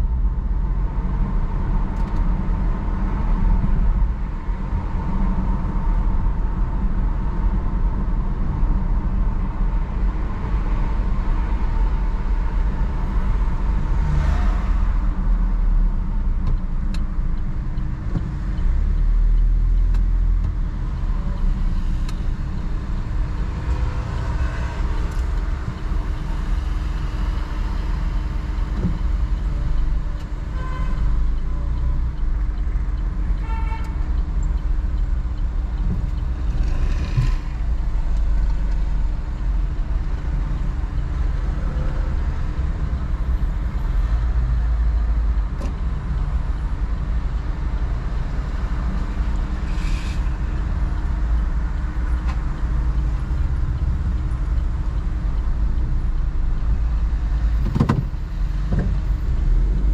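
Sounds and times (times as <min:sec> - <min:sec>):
car engine rumble and road noise: 0:00.0 - 0:59.9
car horn toots: 0:30.6 - 0:31.1, 0:33.4 - 0:34.0.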